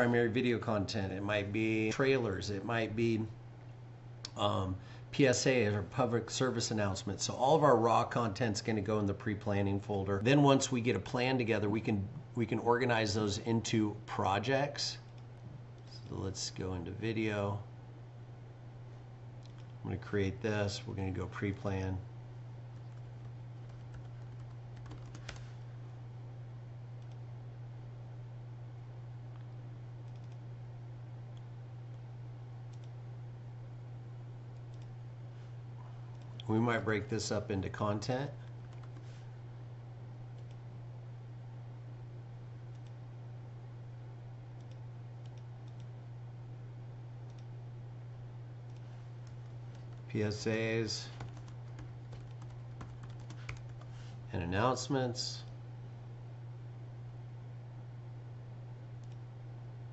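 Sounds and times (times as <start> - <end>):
low electrical hum: 0.0 - 59.9
keyboard keystrokes typing: 22.8 - 25.4, 38.6 - 39.1, 51.2 - 53.9
computer mouse clicks: 29.4 - 30.4, 32.7 - 33.0, 34.6 - 34.9, 40.4 - 40.6, 42.7 - 43.0, 44.6 - 45.9, 47.3 - 47.5, 59.0 - 59.2.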